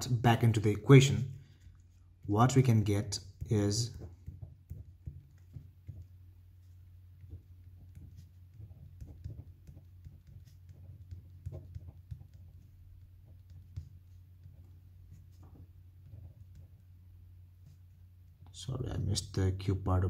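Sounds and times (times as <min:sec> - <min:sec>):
steady low hum: 0:00.0 - 0:20.0
pen writing on paper: 0:04.0 - 0:16.8.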